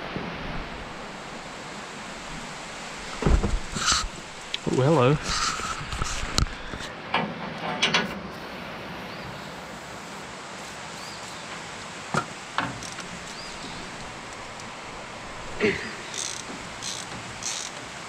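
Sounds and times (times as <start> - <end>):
steady low hiss: 0.0 - 18.0.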